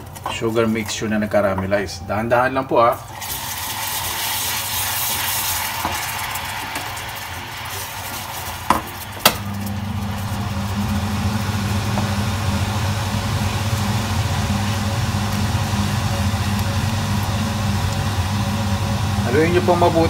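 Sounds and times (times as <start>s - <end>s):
sauce bubbling in a saucepan: 3.0s - 20.0s
low machine hum: 5.5s - 20.0s.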